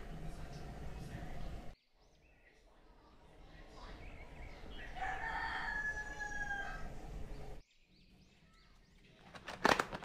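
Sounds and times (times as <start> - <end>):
rooster crowing: 4.8 - 7.0.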